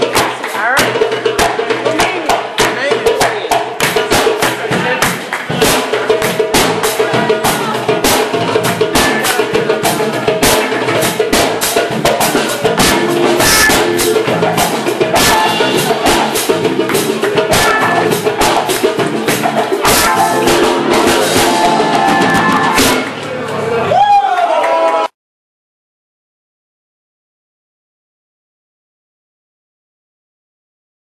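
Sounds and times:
rapid drum hits: 0.0s - 23.2s
live band playing dance music: 0.0s - 23.5s.

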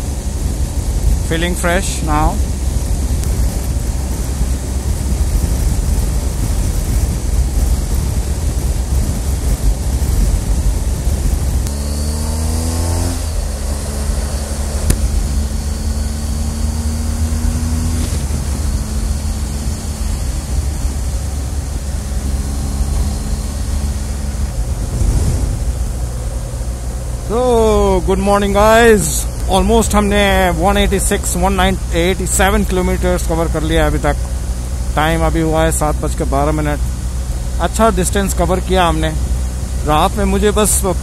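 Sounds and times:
wind rushing on microphone: 0.0s - 26.9s
motorcycle engine: 0.0s - 41.0s.

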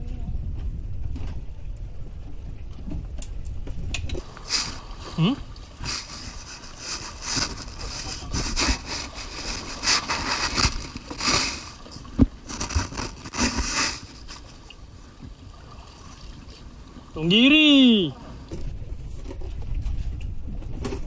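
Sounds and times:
wind buffeting microphone: 0.0s - 14.2s, 18.3s - 21.0s
camera handling rustling: 5.8s - 14.5s.

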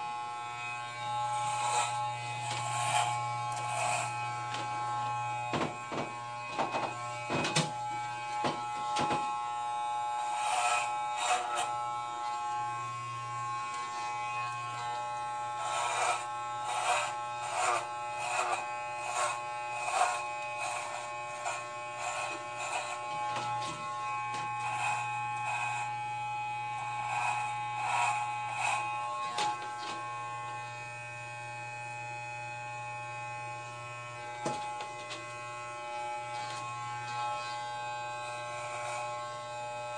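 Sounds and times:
electric hair clippers buzzing: 0.0s - 39.9s.

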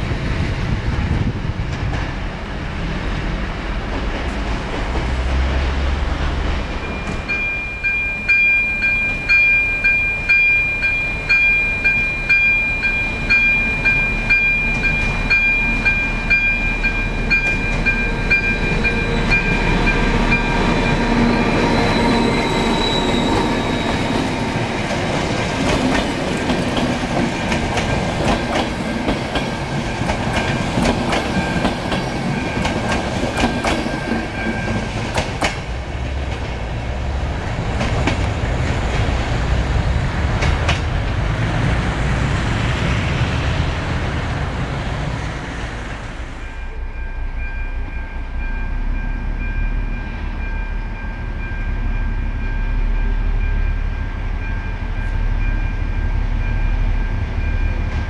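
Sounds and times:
diesel locomotive engine rumbling: 0.0s - 58.0s
wheels clacking over rail joints: 23.0s - 44.4s.

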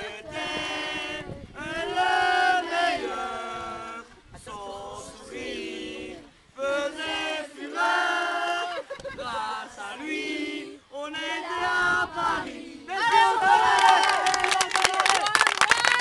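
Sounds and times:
group of voices chanting: 9.4s - 14.8s.

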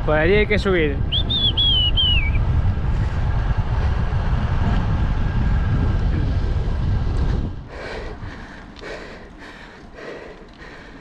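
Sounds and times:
wind buffeting microphone: 0.0s - 11.0s
high whistling call: 1.1s - 2.4s.

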